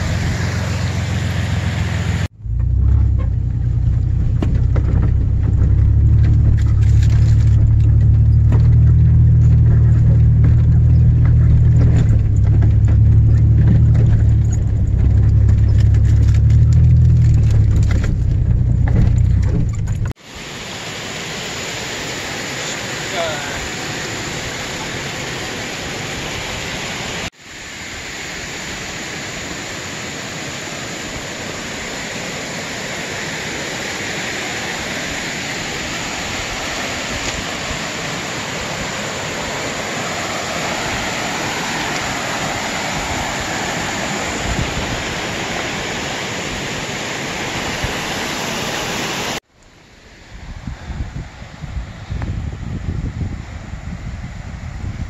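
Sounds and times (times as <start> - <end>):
creek water rushing over rocks: 3.7 - 50.2
wind on microphone: 40.6 - 46.8, 50.1 - 55.0.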